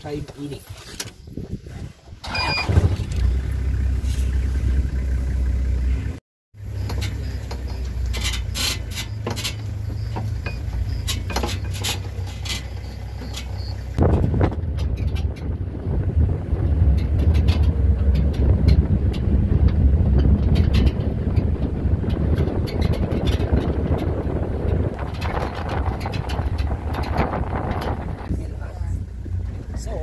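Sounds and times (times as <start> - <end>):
vehicle engine rumbling: 0.0 - 30.0
clicks and rattles: 6.7 - 15.6, 16.8 - 28.3.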